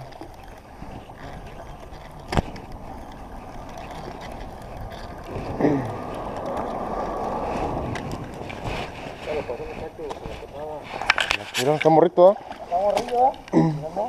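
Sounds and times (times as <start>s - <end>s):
fishing reel whirring: 0.0s - 9.2s.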